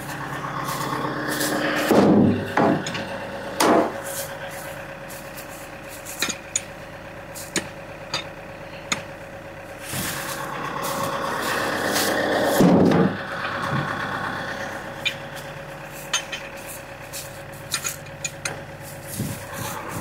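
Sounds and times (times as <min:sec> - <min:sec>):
engine idling: 0:00.0 - 0:20.0
log thudding into steel tray: 0:01.8 - 0:04.0
sharp knocks: 0:01.9 - 0:04.0
log rolling and scraping: 0:09.7 - 0:20.0.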